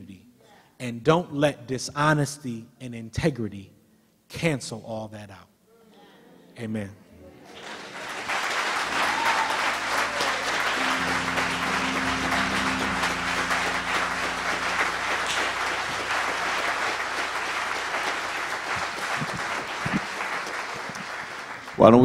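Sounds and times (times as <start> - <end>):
keyboard sustained chords: 6.2 - 19.8
congregation applauding: 7.4 - 22.0.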